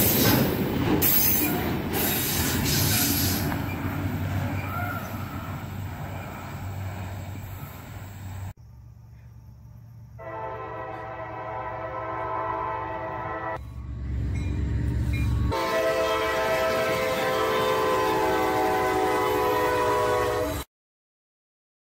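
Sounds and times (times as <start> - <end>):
locomotive engine rumble: 0.0 - 19.6
locomotive air horn blasts: 10.2 - 13.7, 15.5 - 20.7.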